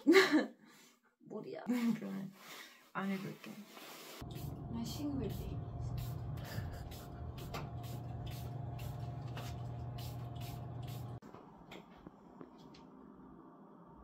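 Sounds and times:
steady low hum: 0:04.2 - 0:14.0.

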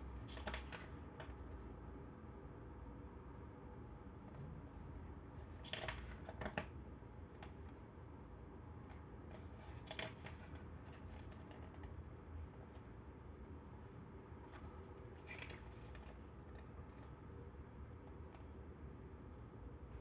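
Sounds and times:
paper pages turning: 0:00.2 - 0:01.3, 0:14.5 - 0:17.1.

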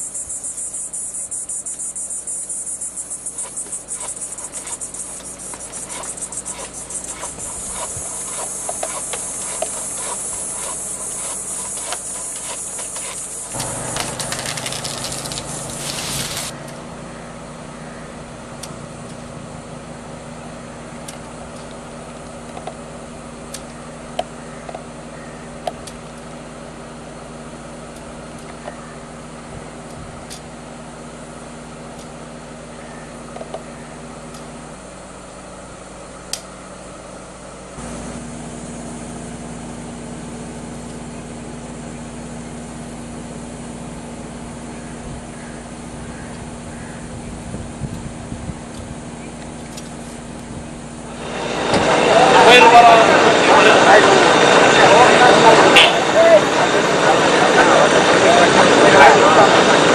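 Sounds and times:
insects shrilling: 0:00.0 - 0:16.5
low engine hum: 0:00.0 - 0:59.9.

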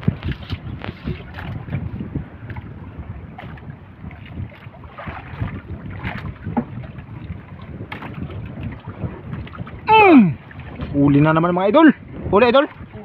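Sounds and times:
water lapping: 0:00.0 - 0:13.0
wind buffeting microphone: 0:00.0 - 0:13.0.

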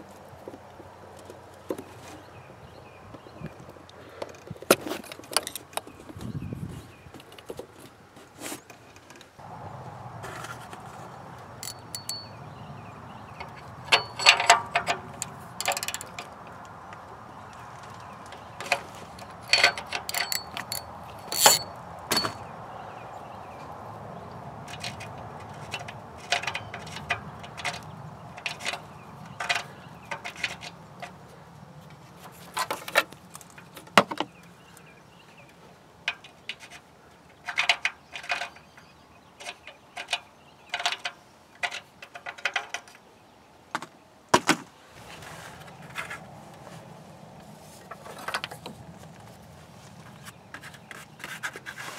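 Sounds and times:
metal clinking and clatter: 0:11.6 - 0:12.4, 0:13.4 - 0:16.4, 0:18.6 - 0:22.5.

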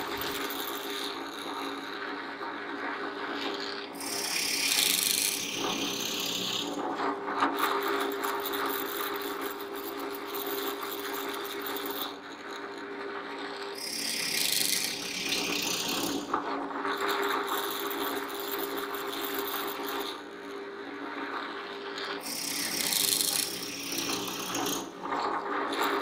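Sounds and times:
drill press motor hum: 0:00.0 - 0:01.9, 0:22.2 - 0:25.0
drill bit boring into wood: 0:00.0 - 0:02.0, 0:03.4 - 0:06.8, 0:07.6 - 0:12.7, 0:13.6 - 0:16.3, 0:17.0 - 0:20.5, 0:22.0 - 0:25.0.

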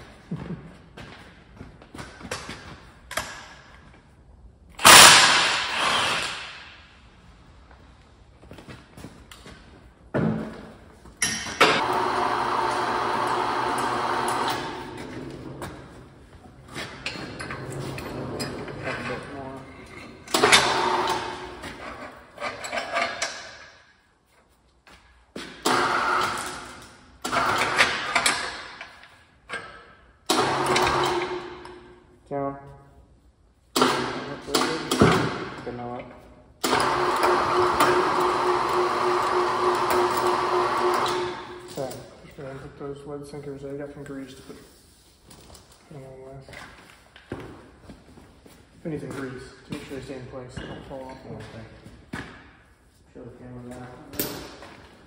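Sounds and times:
motor-driven machine running: 0:11.8 - 0:15.0, 0:36.6 - 0:41.7
impact wrench hammering: 0:30.3 - 0:31.9.

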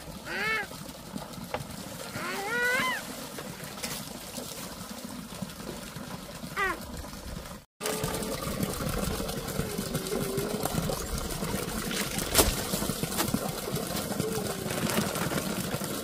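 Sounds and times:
small engine humming: 0:07.8 - 0:16.0
plastic bag crinkling: 0:14.5 - 0:15.8.

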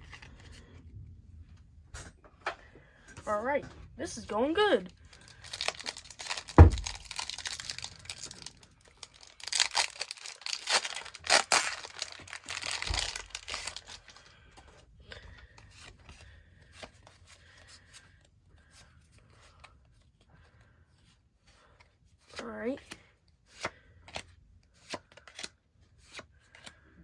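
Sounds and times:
foil wrapper tearing and crinkling: 0:05.1 - 0:14.3
cards ticking when handled: 0:23.6 - 0:26.8.

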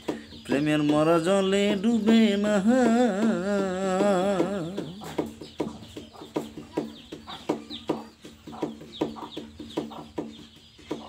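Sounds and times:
person singing: 0:00.1 - 0:05.7.

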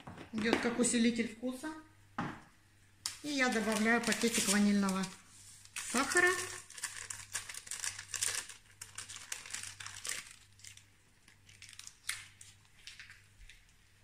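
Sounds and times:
packet rustling: 0:03.1 - 0:13.8
paper packet crinkling: 0:03.1 - 0:13.9.

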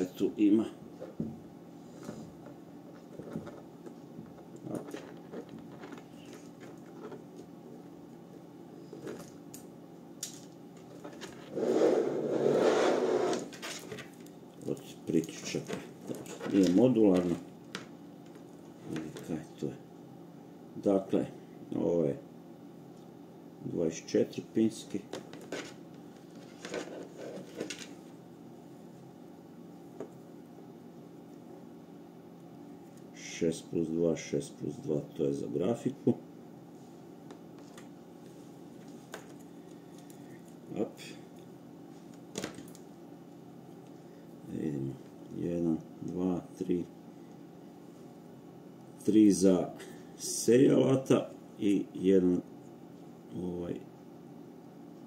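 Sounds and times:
cable bundle rubbing and rustling: 0:01.8 - 0:09.4, 0:10.7 - 0:17.5, 0:25.2 - 0:28.2
clicks and scrapes of handling: 0:25.2 - 0:28.0.

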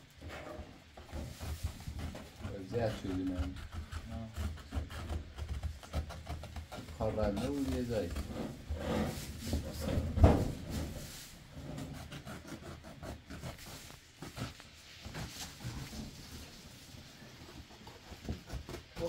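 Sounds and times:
rug thump: 0:09.4 - 0:11.0
rug rustling: 0:13.2 - 0:19.0.

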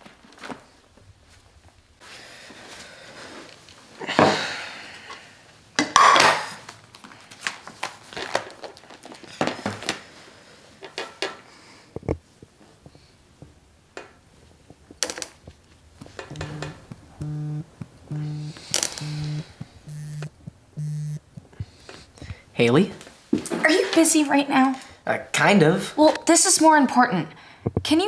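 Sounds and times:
phone vibrating on tabletop: 0:16.3 - 0:21.2.

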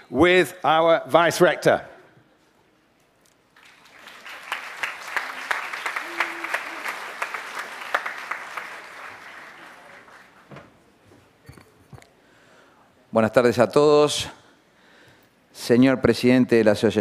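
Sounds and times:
audience applauding: 0:03.6 - 0:10.6.

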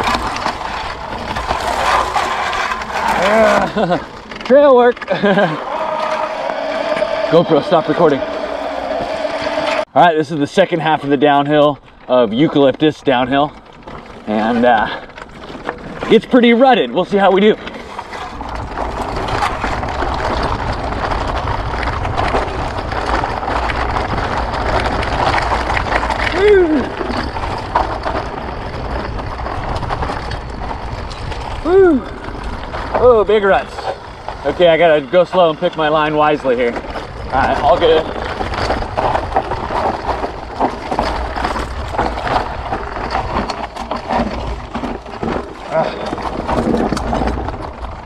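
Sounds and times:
frame and suspension rattling: 0:00.0 - 0:48.0
knobby tyres crunching over stones: 0:00.0 - 0:48.0
frame rattles and knocks: 0:32.9 - 0:48.0.

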